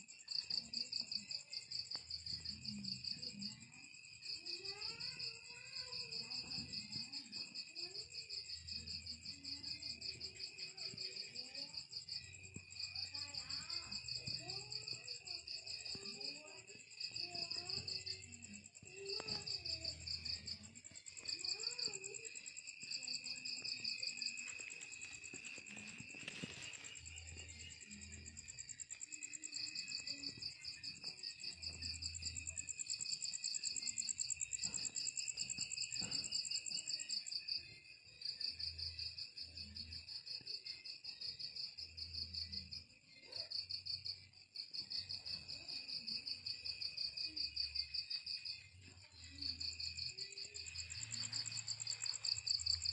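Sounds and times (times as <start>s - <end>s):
crickets steady high trills: 0.1s - 52.9s
cricket trilling in pulses: 43.5s - 52.9s.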